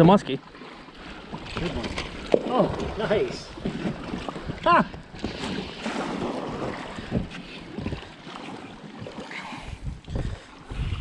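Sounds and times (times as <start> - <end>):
wind buffeting microphone: 1.3 - 8.2, 9.6 - 11.0.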